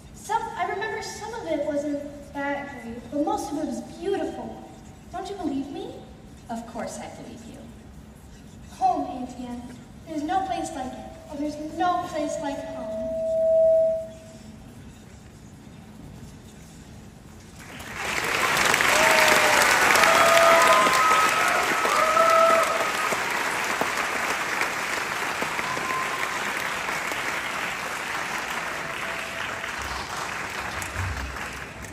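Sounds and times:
audience clapping: 17.6 - 31.9
audience cheering: 18.0 - 31.9.

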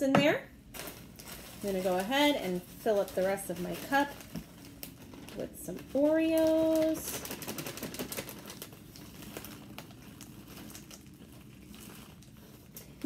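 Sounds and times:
plastic bag crinkling: 0.6 - 13.0
cookie crumbs pouring into cup: 5.9 - 13.0.

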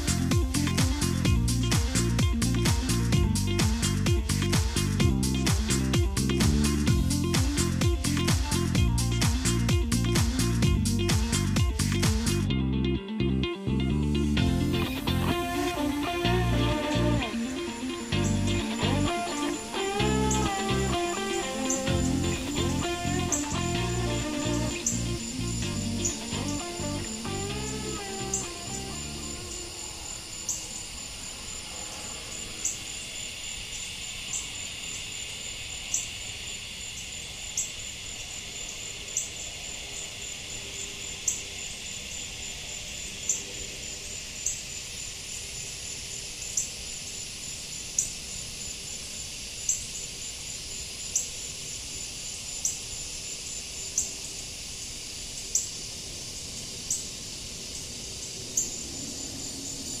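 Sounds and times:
crickets trilling: 14.7 - 60.0.

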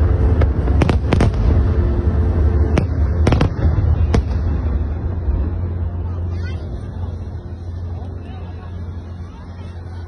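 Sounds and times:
fireworks bursting: 0.0 - 5.6
continuous low rumble: 0.0 - 10.0.

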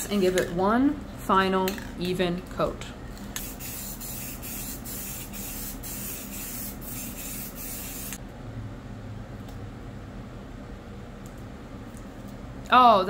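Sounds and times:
aerosol spray can hissing: 3.4 - 8.2.

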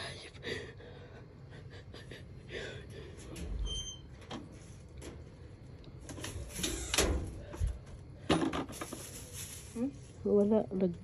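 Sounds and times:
plastic bag rustling: 6.1 - 10.8.

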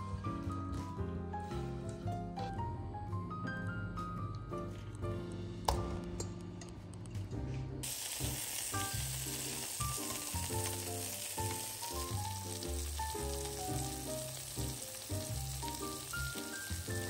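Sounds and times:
light background music: 0.0 - 17.0
vegetables sizzling in hot oil: 7.8 - 17.0.

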